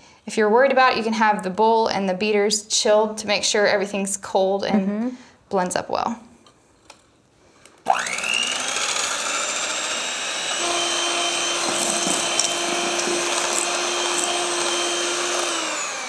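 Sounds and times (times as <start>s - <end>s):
electric hand mixer whine: 7.8s - 16.0s.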